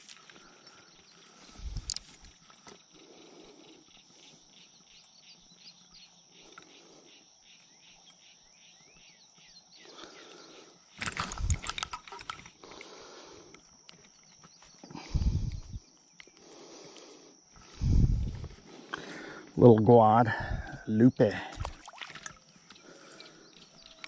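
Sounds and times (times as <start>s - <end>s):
high-pitched insect drone: 0.0s - 24.0s
insect chirps: 0.0s - 24.0s
quiet riverside ambience: 0.0s - 24.0s
fishing rod and line handled: 1.6s - 2.8s, 10.9s - 12.7s.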